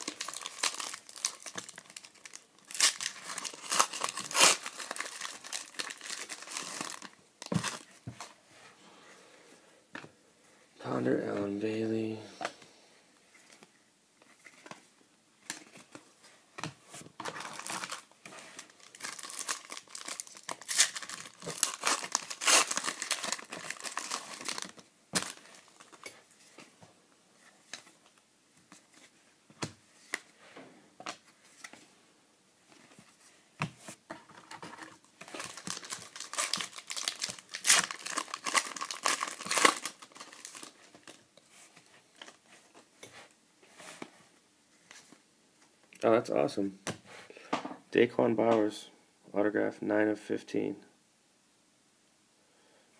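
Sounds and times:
foil wrappers crinkling and tearing: 0.0s - 7.8s, 17.4s - 26.0s, 35.3s - 41.2s.

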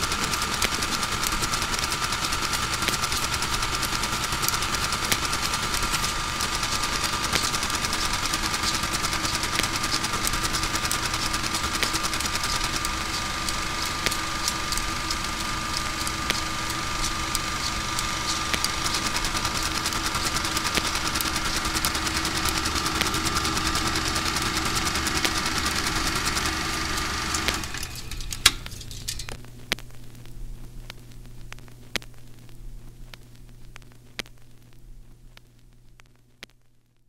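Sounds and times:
mechanical drone with high tone: 0.0s - 29.4s
low hum: 0.0s - 36.1s
crackling clicks: 0.0s - 37.0s.

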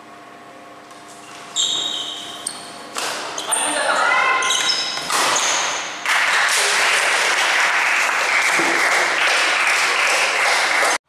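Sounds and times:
crowd clapping: 6.0s - 11.0s.

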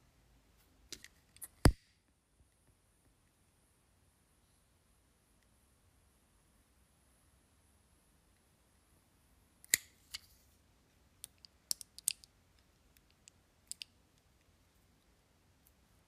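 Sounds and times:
small clicks of handled wires: 11.2s - 14.3s.

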